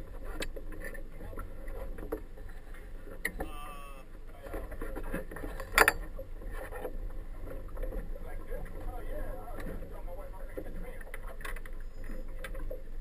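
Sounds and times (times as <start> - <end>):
low steady rumble: 0.0 - 13.0
short wavering squeak: 11.8 - 12.4.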